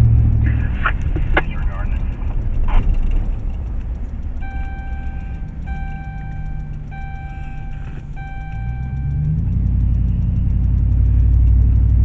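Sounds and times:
vehicle engine and road rumble: 0.0s - 12.0s
electronic beeping: 4.4s - 10.6s.

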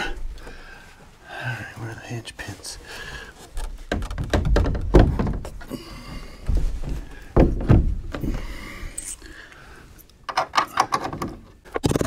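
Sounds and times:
door knocking against frame: 3.9s - 5.5s, 7.4s - 8.2s.

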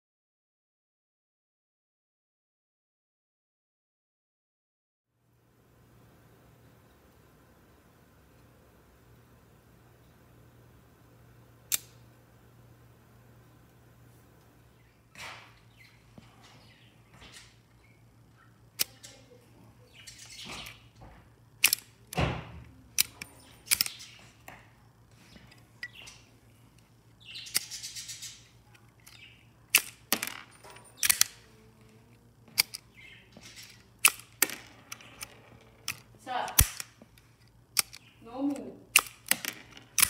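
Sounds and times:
metallic bolt action clicks: 21.6s - 22.2s, 22.9s - 24.2s, 28.7s - 31.5s, 32.6s - 32.9s, 33.5s - 38.1s, 38.9s - 40.0s.

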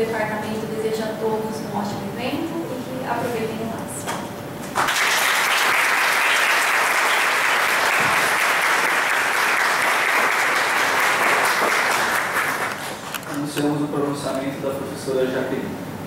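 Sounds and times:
audience applauding: 4.7s - 13.2s.

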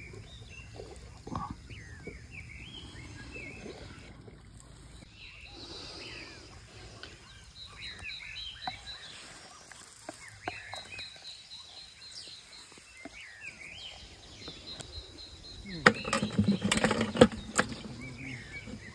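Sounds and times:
birds chirping: 0.0s - 18.9s
knocks on plastic bucket: 15.8s - 17.9s.

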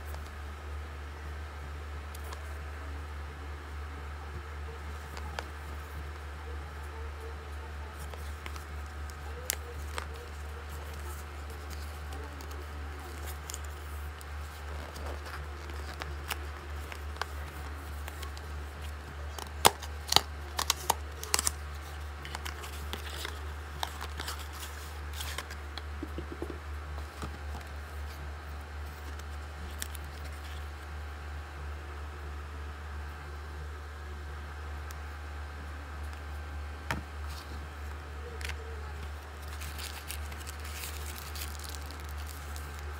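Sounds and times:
steady low hum: 0.0s - 42.9s
cardboard box clicks and rustles: 39.4s - 42.9s.

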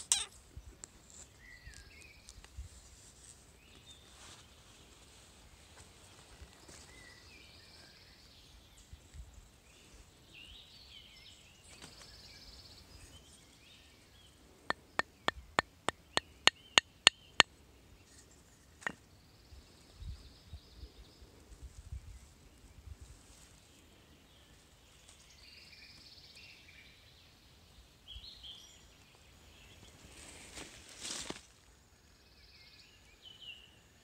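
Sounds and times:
sharp wooden taps: 14.7s - 17.5s.

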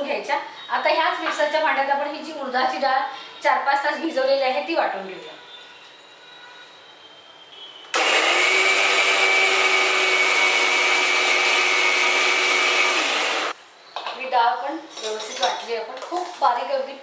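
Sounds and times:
electric mixer grinder running: 8.0s - 13.6s.

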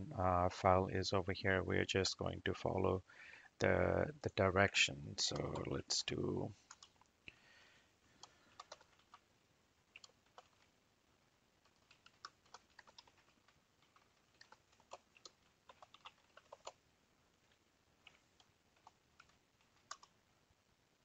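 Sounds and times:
faint keyboard typing: 5.2s - 7.4s, 8.1s - 10.8s, 11.6s - 20.3s.

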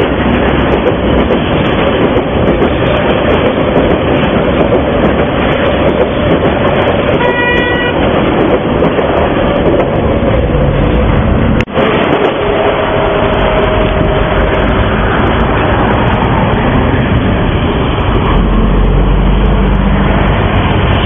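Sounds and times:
train wheels rumbling on rail: 0.0s - 21.0s
train horn toot: 7.1s - 8.1s, 11.8s - 14.9s.

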